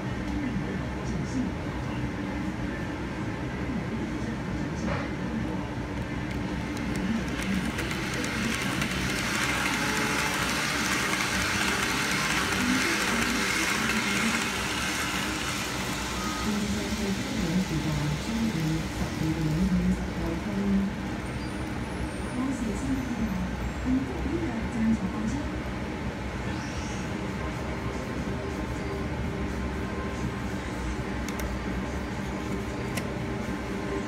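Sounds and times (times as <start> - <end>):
model train whirring on track: 5.4 - 28.6.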